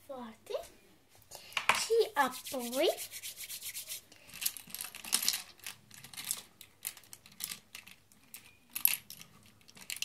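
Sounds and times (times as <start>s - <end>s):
rustling scrapes: 2.1s - 4.1s.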